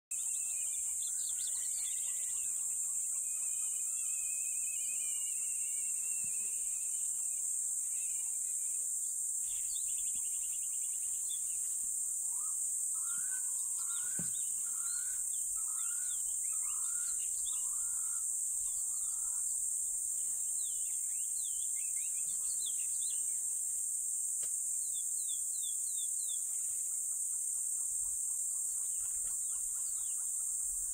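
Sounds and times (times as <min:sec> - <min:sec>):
bird chirps: 0:00.1 - 0:08.7, 0:09.4 - 0:19.4
high-pitched insect chorus: 0:00.1 - 0:30.9.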